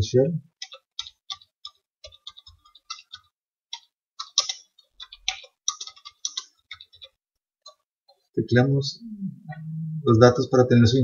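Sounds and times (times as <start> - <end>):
keyboard typing clicks: 0.6 - 8.2.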